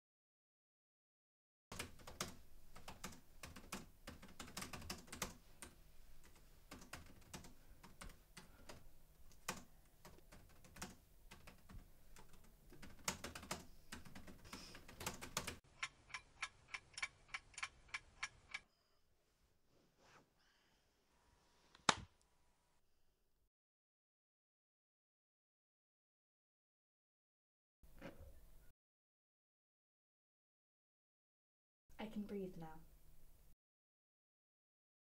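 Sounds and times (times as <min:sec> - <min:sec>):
typing on laptop keyboard: 0:01.7 - 0:18.6
clock-like ticking: 0:15.8 - 0:18.6.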